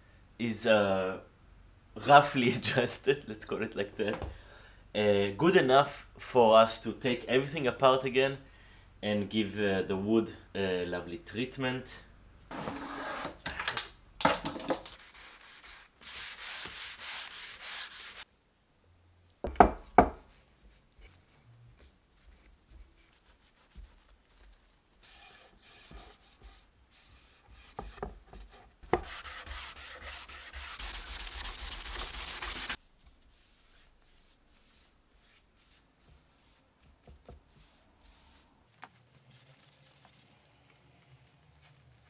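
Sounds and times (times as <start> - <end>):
sandpaper rubbing wood: 14.9 - 18.3, 22.3 - 24.1, 25.0 - 28.0, 29.0 - 36.6, 37.5 - 38.4.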